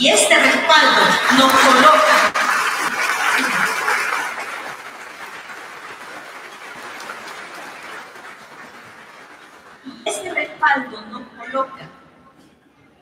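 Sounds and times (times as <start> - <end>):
audience applause in a hall: 0.8 - 9.9.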